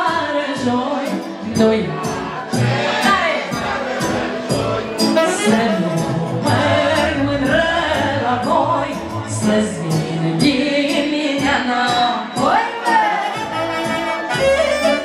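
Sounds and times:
woman singing into microphone: 0.0s - 2.4s, 3.0s - 3.7s, 5.2s - 15.0s
accordion: 1.0s - 8.1s, 12.6s - 15.0s
saxophone: 4.9s - 7.1s, 12.5s - 15.0s.

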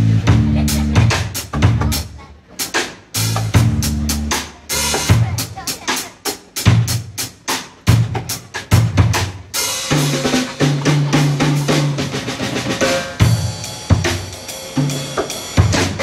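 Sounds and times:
low bass guitar notes: 0.0s - 2.0s, 3.4s - 4.4s
drum kit: 0.0s - 16.0s
jazz band playing: 0.0s - 16.0s.

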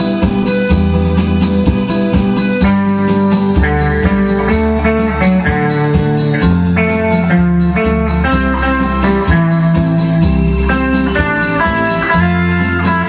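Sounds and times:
low bass line: 0.0s - 13.0s
melodic electric guitar lead: 0.0s - 13.0s.

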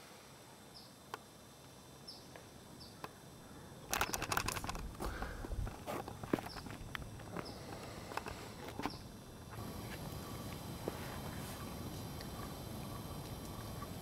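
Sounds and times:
crackling and rustling: 3.9s - 14.0s.

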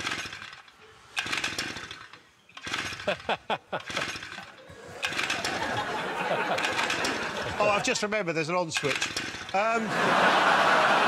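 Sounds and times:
pull-start engine spluttering: 1.2s - 7.9s
audience laughter: 3.0s - 8.1s, 9.7s - 11.0s.

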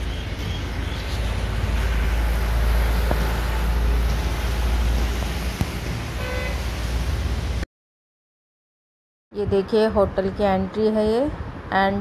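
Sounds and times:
traffic rumble: 0.0s - 7.6s, 9.3s - 12.0s
vehicle horn toot: 6.2s - 6.6s.

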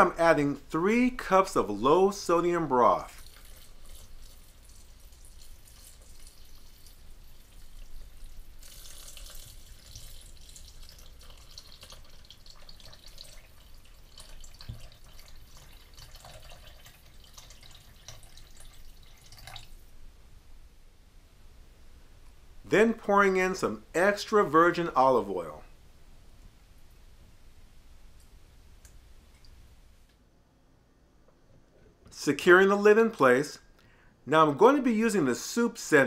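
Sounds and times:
liquid pouring into blender jar: 3.2s - 19.8s.

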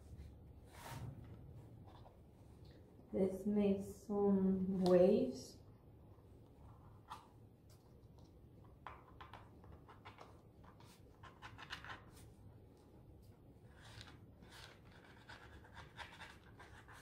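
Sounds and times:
tool scratching paint on paper: 14.5s - 17.0s.

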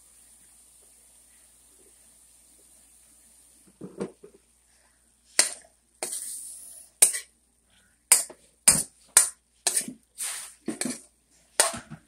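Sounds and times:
metal spoon scraping frying pan: 5.4s - 7.3s, 8.1s - 11.8s.

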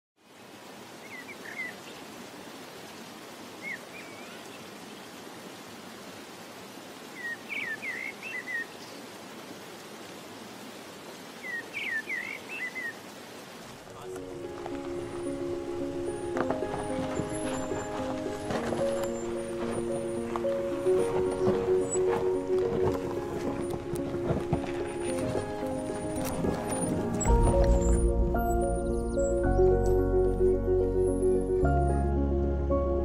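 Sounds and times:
steady outdoor hiss: 0.2s - 33.0s
bird chirping: 7.2s - 9.0s, 11.4s - 13.0s, 14.0s - 24.0s, 24.7s - 30.2s.

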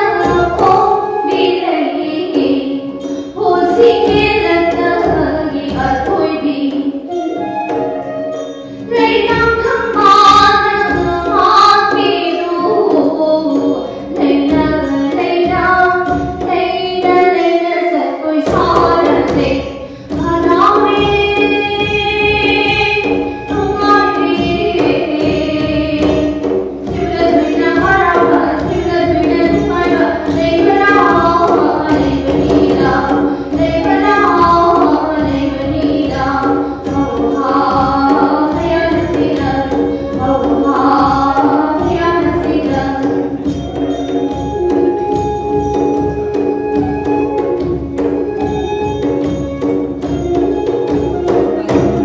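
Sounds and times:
drum and cymbal beat: 18.5s - 52.0s.

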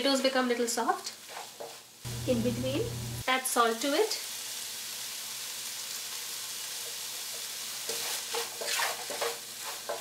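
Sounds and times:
masala sizzling in a pot: 0.0s - 10.0s
wooden spoon stirring and scraping: 7.3s - 10.0s.

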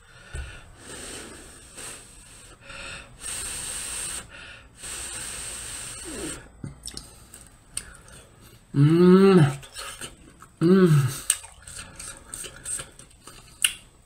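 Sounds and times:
breathy blowing on food: 0.0s - 6.5s
faint mouth sounds: 3.2s - 13.9s.

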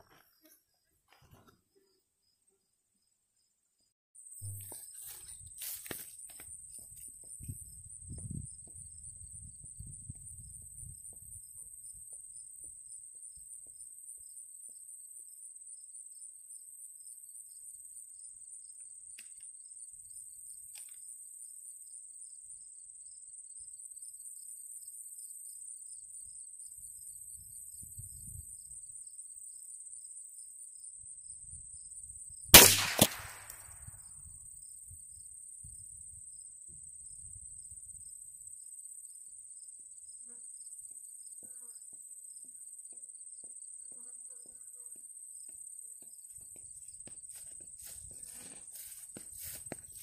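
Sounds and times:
rifle shot: 32.6s - 33.7s
short sharp crack: 32.6s - 33.7s.

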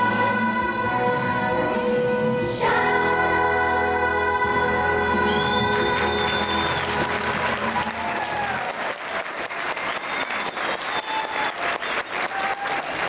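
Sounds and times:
children's choir singing: 0.0s - 7.7s
audience applause: 5.2s - 13.0s.

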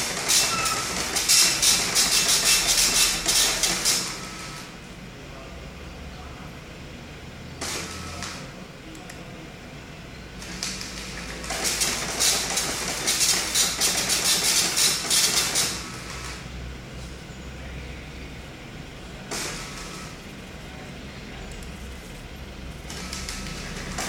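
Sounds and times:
dot-matrix printer printing: 0.0s - 4.8s, 7.6s - 8.5s, 10.4s - 16.5s, 19.2s - 24.0s.

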